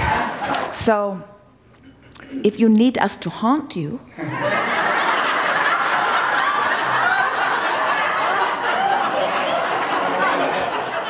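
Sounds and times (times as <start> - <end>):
large audience laughing: 0.0 - 0.8, 4.2 - 11.0.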